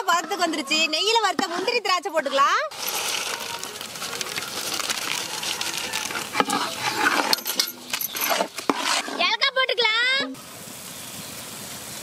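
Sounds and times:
small clinks: 0:07.2 - 0:08.5
food sizzling in a pan: 0:08.5 - 0:12.0.

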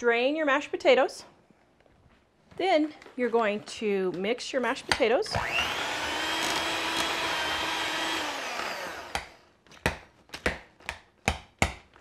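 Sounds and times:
electric hand mixer whine: 0:05.4 - 0:09.4.

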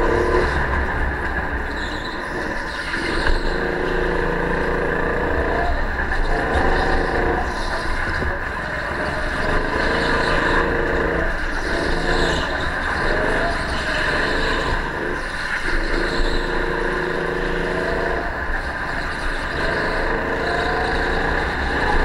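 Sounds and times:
go-kart engine revving: 0:00.0 - 0:22.0.

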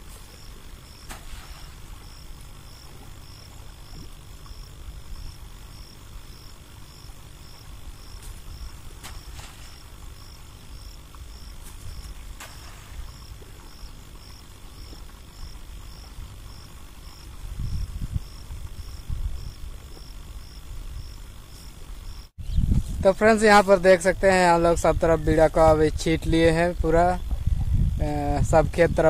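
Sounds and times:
insect chirping: 0:00.0 - 0:29.0
wind rumble on microphone: 0:14.8 - 0:29.0.

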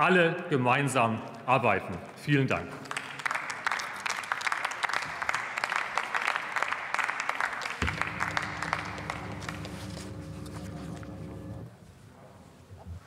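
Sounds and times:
crowd applauding: 0:02.8 - 0:11.6
low steady hum: 0:07.8 - 0:11.7.

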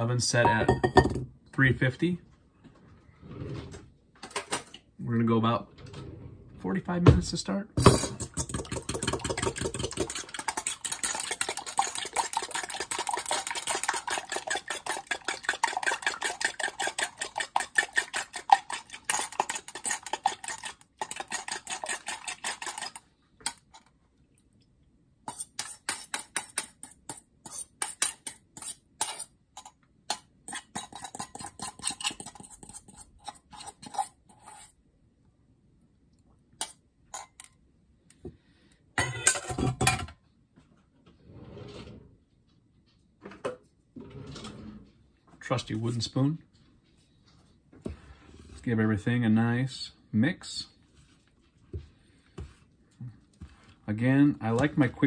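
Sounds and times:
fork beating in a metal bowl: 0:07.9 - 0:23.6, 0:25.3 - 0:29.2, 0:30.1 - 0:34.1.

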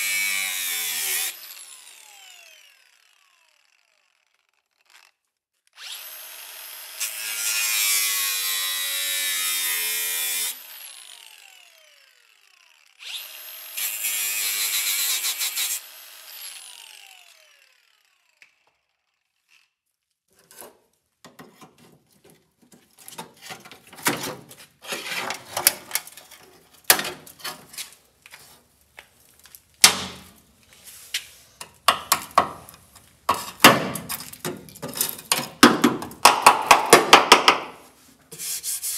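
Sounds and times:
power tool on sheet steel: 0:00.0 - 0:19.8
hand tool scraping steel panel: 0:20.3 - 0:28.6, 0:30.9 - 0:35.6.

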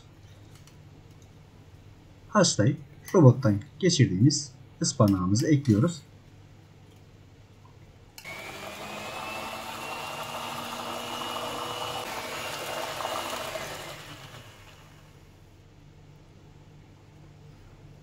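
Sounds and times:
electric hand mixer whining: 0:08.2 - 0:15.2.

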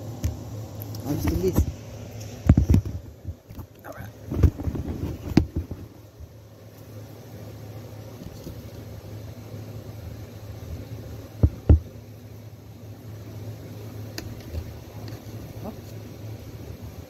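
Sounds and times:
steady low hum: 0:00.0 - 0:17.0
dull thumps: 0:04.3 - 0:06.3, 0:11.4 - 0:12.0.

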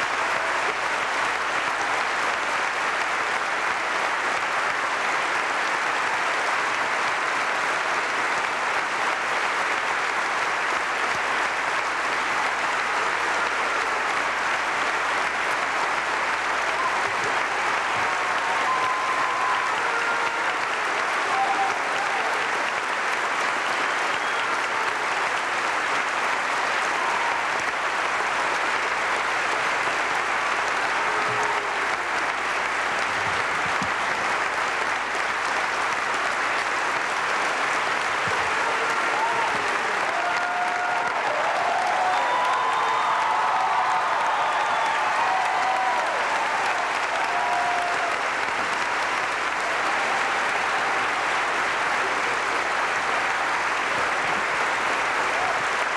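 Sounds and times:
audience applauding: 0:00.0 - 0:55.9
faint voices in crowd: 0:00.0 - 0:55.9.

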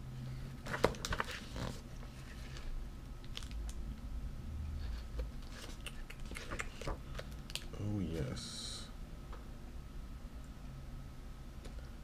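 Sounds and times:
plastic wrapper crinkling: 0:00.7 - 0:03.8, 0:05.4 - 0:07.7.

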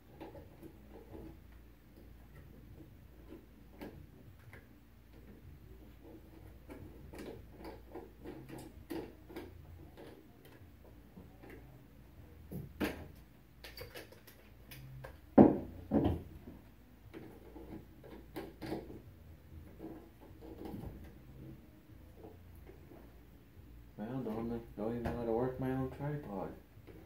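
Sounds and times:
plastic clicks and rattles: 0:12.8 - 0:15.2.

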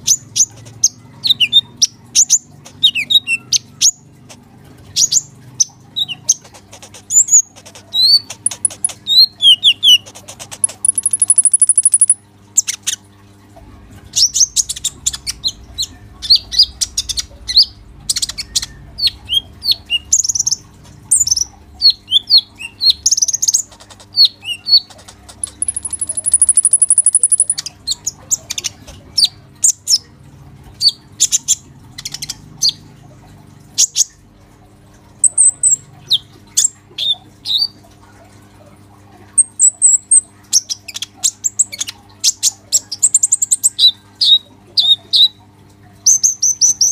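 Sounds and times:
faint electrical hum: 0:00.0 - 0:46.9
bird singing chattering song: 0:05.0 - 0:12.8, 0:14.2 - 0:30.0.

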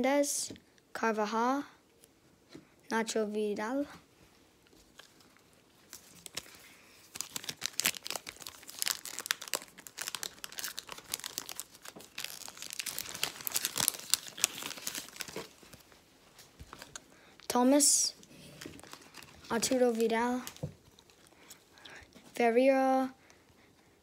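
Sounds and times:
foil wrapper crinkling and tearing: 0:04.9 - 0:16.0, 0:16.6 - 0:17.5, 0:18.5 - 0:21.7.

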